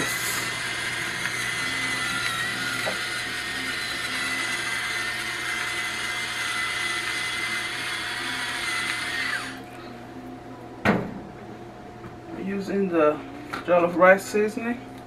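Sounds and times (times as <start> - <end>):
electric pepper grinder whirring: 0.0 - 9.7.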